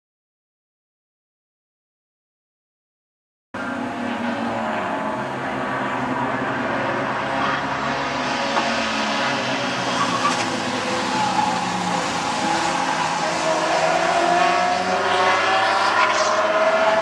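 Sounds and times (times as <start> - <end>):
race car engines: 3.6 - 17.0.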